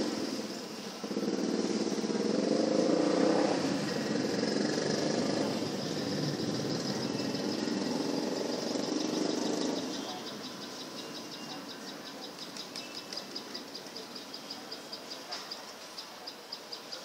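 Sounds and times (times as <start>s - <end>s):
low rasping drone: 0.0s - 11.1s.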